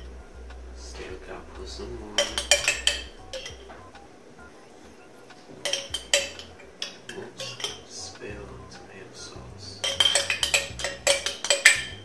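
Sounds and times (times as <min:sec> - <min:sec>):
spoon clinking and scraping in jar: 0:05.6 - 0:07.8, 0:09.8 - 0:11.9.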